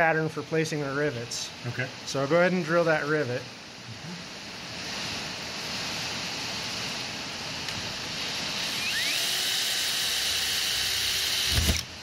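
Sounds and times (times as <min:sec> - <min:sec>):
cordless drill whining: 0:08.5 - 0:12.0.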